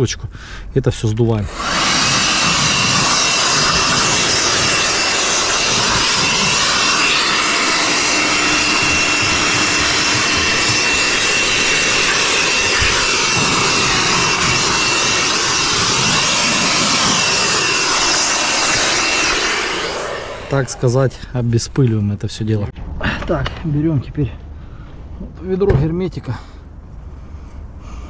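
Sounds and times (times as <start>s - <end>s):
handheld air blower: 1.5s - 20.8s.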